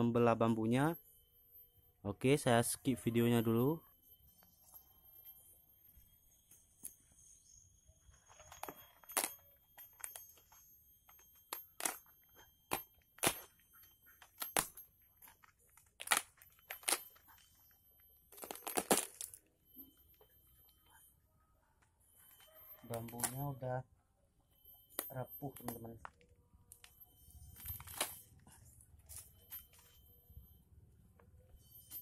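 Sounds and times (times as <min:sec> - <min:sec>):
bamboo cracking and snapping: 0:12.7 - 0:13.4, 0:15.9 - 0:17.0, 0:18.4 - 0:19.4.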